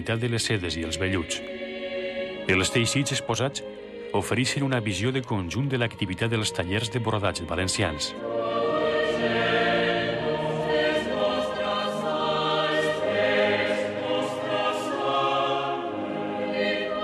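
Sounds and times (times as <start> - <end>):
choir singing held chords: 0.0 - 17.0.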